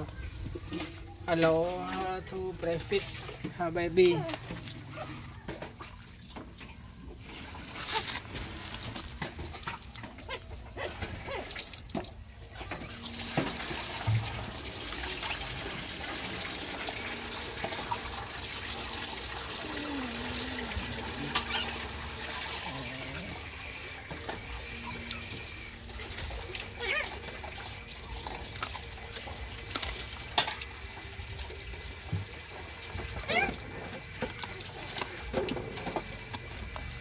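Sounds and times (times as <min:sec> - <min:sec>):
dog lapping and chewing: 0:17.6 - 0:37.0.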